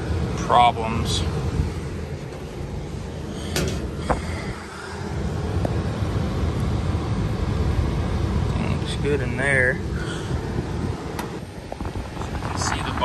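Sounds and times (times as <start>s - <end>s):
furnace blower rumble: 0.0s - 13.0s
wind noise on microphone: 10.0s - 13.0s.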